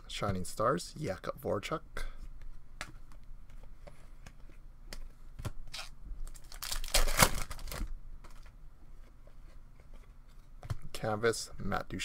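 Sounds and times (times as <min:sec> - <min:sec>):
foil wrapper tearing: 0:05.7 - 0:07.8.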